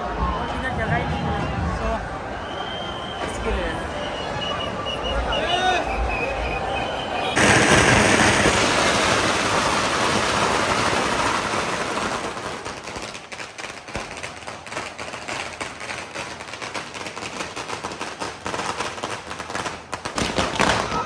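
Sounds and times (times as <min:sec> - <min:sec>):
loud dense noise: 0:00.0 - 0:15.9.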